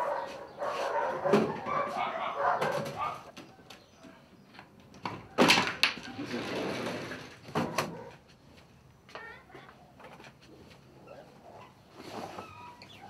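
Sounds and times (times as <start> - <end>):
scraping rustle: 0.1 - 3.3, 6.0 - 8.4, 10.1 - 13.0.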